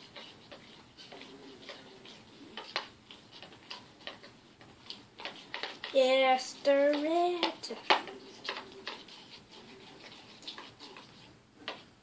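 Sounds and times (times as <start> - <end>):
spoon stirring glue: 0.0 - 12.0.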